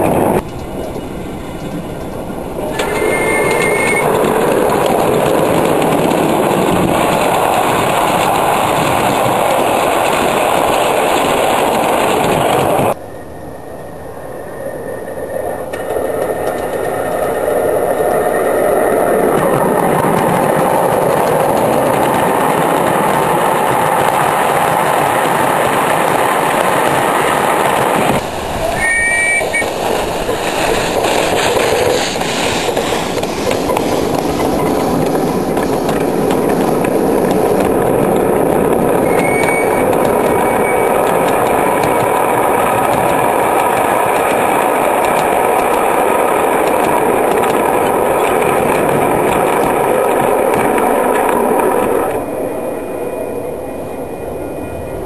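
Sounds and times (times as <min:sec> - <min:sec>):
train wheels clacking over rail joints: 0:00.0 - 0:13.0, 0:19.2 - 0:52.2
short high wheel squeals: 0:02.7 - 0:04.1, 0:28.6 - 0:29.7, 0:39.0 - 0:39.9.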